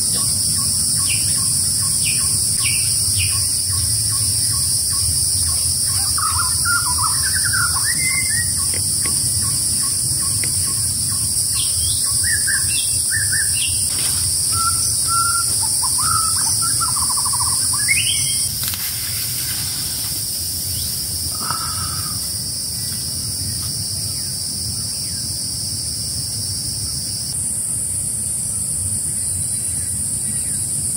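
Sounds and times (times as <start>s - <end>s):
insects droning: 0.0s - 30.9s
birds chirping and whistling: 0.2s - 19.8s.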